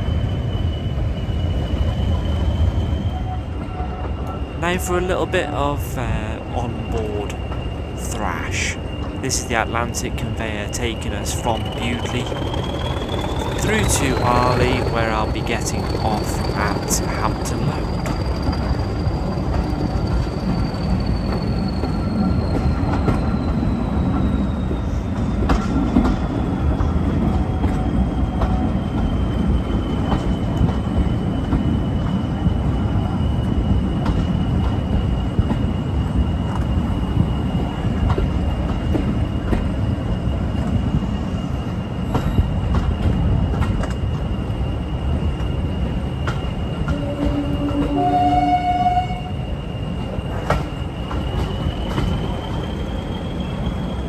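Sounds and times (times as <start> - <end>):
diesel locomotive engine working hard: 0.0 - 54.0
train rumbling on rails: 0.0 - 54.0
train horn blast: 46.9 - 49.4
turbocharger whistle: 46.9 - 49.5.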